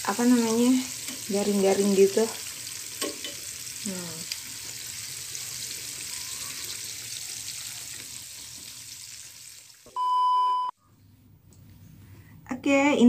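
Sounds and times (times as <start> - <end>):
battered food deep-frying in oil: 0.0 - 10.4.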